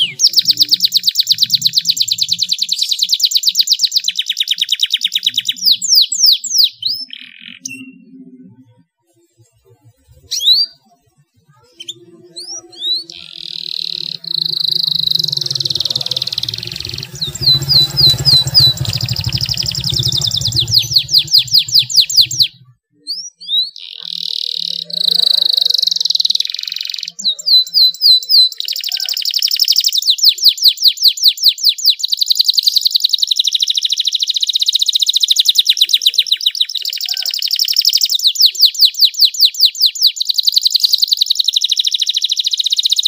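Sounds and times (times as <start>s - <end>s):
canary singing trills: 0.0s - 8.6s, 10.0s - 43.0s
low rumble: 12.2s - 22.8s.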